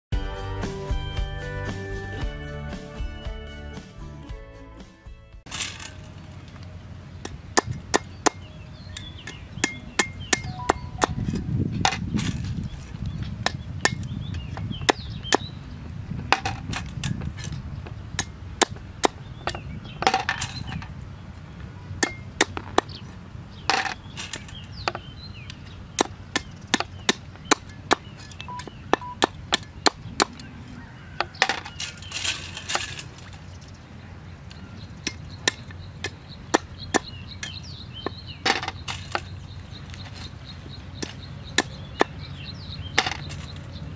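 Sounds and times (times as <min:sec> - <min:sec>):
cleaver chopping on wooden board: 0:41.0 - 0:42.2.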